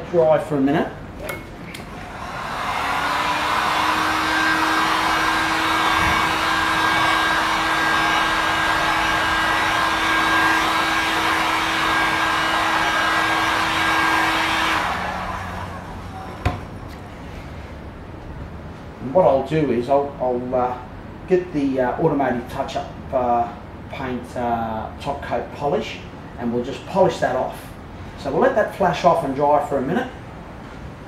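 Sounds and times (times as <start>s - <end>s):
heat gun blowing: 1.8s - 16.0s.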